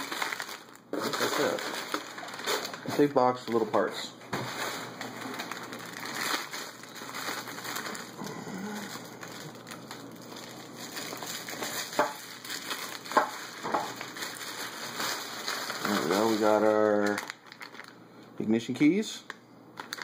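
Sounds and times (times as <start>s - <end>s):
plastic bag crinkling: 0.0s - 18.0s, 19.8s - 20.0s.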